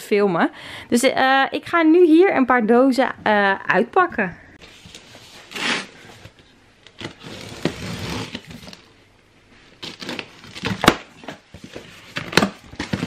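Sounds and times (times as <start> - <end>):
cardboard flaps rustling: 9.8 - 13.0.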